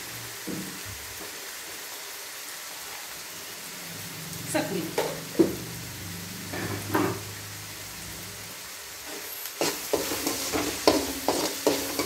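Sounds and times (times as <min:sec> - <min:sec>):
food sizzling in a pan: 0:00.0 - 0:12.0
steel spoon scraping metal pan: 0:09.1 - 0:12.0.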